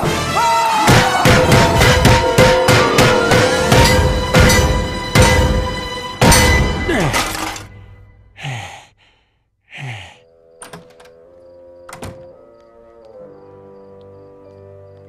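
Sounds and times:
quiet music with held notes: 0:10.3 - 0:15.0.

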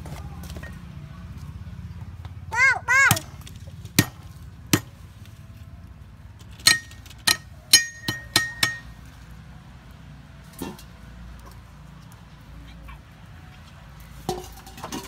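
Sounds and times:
thin metallic ring: 0:06.6 - 0:08.9.

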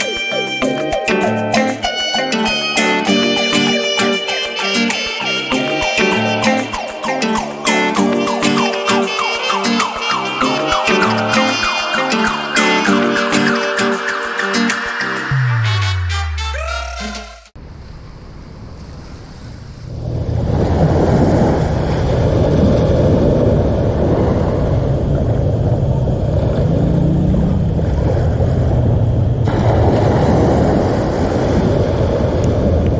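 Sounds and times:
wind rumbling on microphone: 0:17.6 - 0:32.9
surf washing onto beach: 0:17.8 - 0:32.9.

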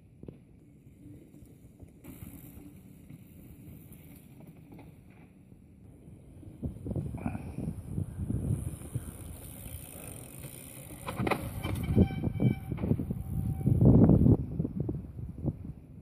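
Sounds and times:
bike tyres rolling on rock: 0:00.1 - 0:07.2, 0:07.8 - 0:14.4
wind rumbling on microphone: 0:05.8 - 0:16.0.

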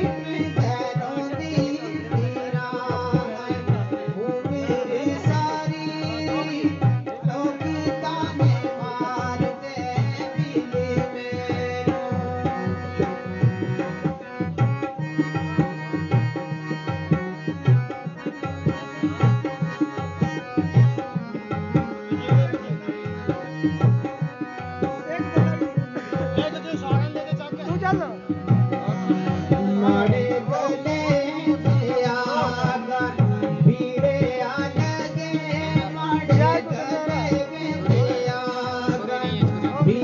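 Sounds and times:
hand drum rhythm: 0:00.0 - 0:40.0
harmonium playing chords: 0:00.0 - 0:40.0.

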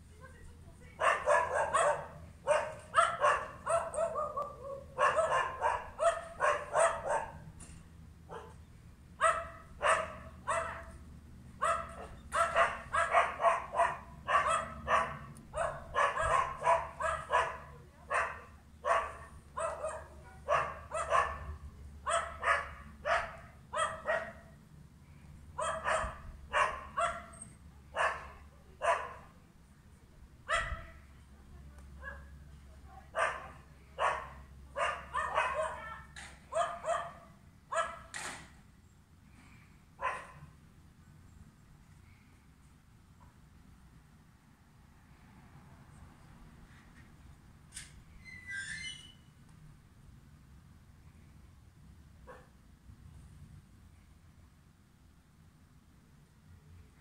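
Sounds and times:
dogs barking: 0:01.0 - 0:07.5, 0:08.3 - 0:08.6, 0:09.2 - 0:11.0, 0:11.6 - 0:24.5, 0:25.6 - 0:29.2, 0:30.5 - 0:31.0, 0:33.1 - 0:38.1, 0:40.0 - 0:40.5.

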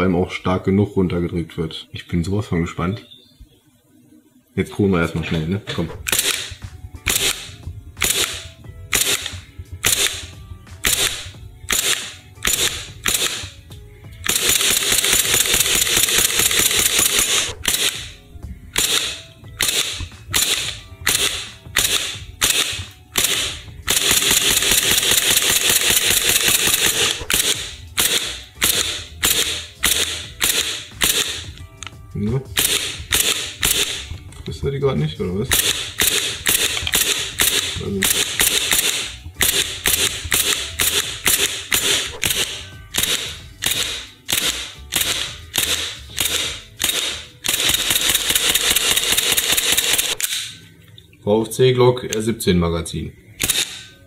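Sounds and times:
airsoft pistol shots: 0:06.0 - 0:13.5, 0:14.3 - 0:18.2, 0:18.8 - 0:31.5, 0:32.6 - 0:34.1, 0:35.5 - 0:50.5, 0:53.4 - 0:53.9.

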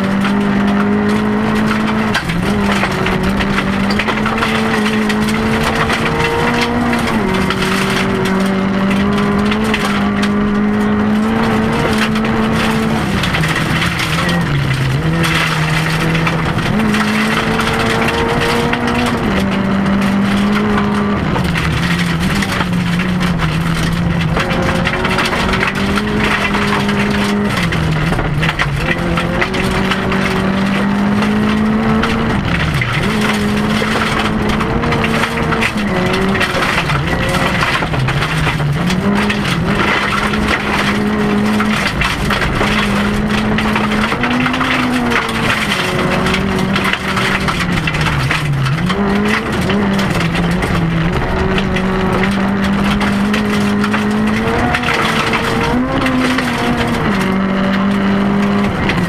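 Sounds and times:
gravel hissing and rattling: 0:00.0 - 0:59.0
rally car engine revving: 0:00.0 - 0:59.0.

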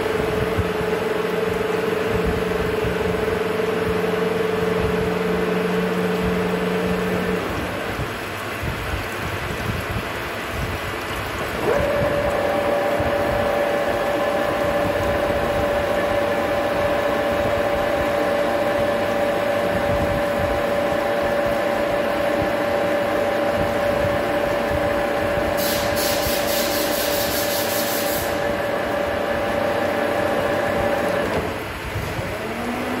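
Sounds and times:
coolant hissing and splashing: 0:00.0 - 0:33.0
lathe machine whine: 0:11.6 - 0:33.0.

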